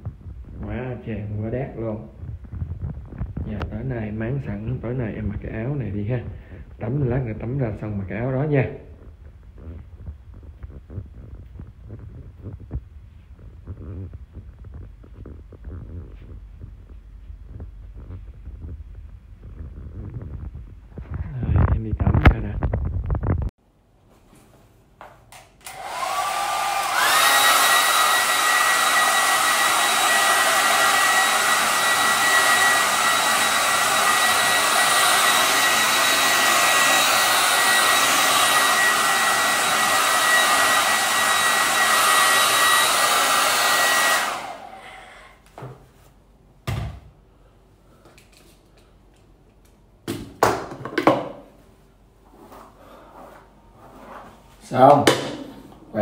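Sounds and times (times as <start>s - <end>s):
hair dryer whining: 25.4s - 45.6s.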